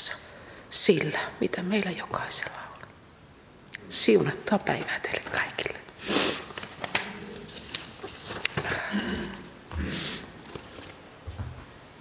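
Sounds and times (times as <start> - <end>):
papers rustling: 6.4 - 9.6, 10.4 - 11.8.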